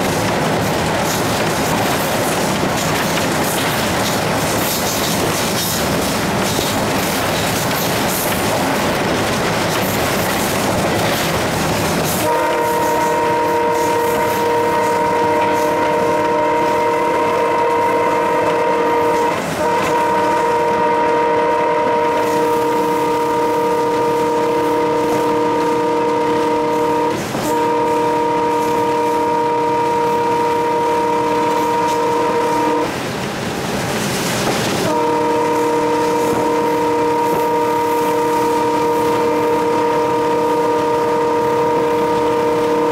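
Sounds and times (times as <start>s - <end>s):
locomotive running: 0.0s - 42.9s
train wheels on rails: 0.0s - 42.9s
locomotive horn blasts: 12.2s - 33.0s, 34.8s - 42.9s.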